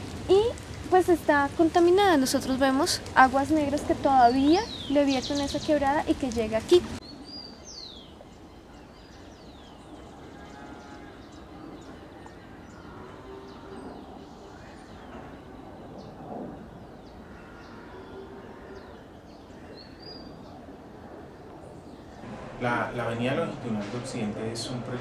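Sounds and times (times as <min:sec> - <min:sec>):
birds chirping: 0:00.0 - 0:25.0
faint background noise: 0:00.0 - 0:25.0
nasal bird calls: 0:02.4 - 0:22.3.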